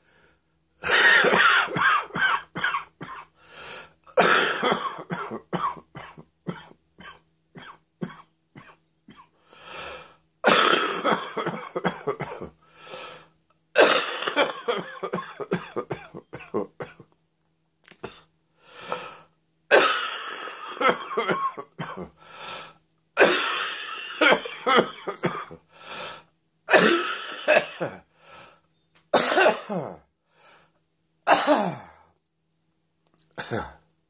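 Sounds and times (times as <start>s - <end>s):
person coughing: 0.8s - 3.3s, 4.2s - 9.3s, 10.4s - 12.6s, 13.8s - 17.1s, 19.7s - 22.2s, 23.2s - 25.6s, 26.7s - 28.1s, 29.2s - 30.1s, 31.3s - 32.0s, 33.3s - 33.8s.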